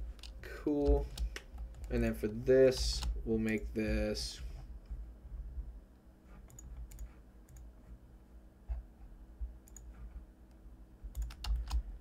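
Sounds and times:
low steady hum: 0:00.0 - 0:12.0
computer mouse clicks: 0:00.1 - 0:03.6, 0:06.3 - 0:07.7, 0:09.6 - 0:10.0, 0:11.1 - 0:11.9.

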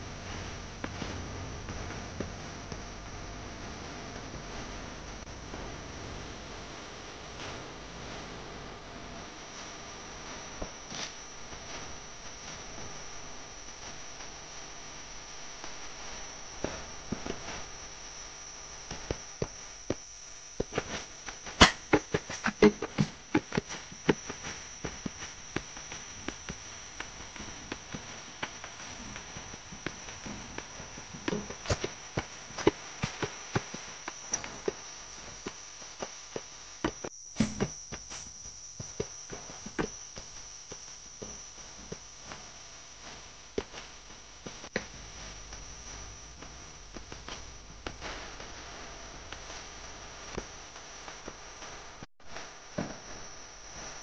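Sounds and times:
high insect buzz: 0:15.7 - 0:42.5.

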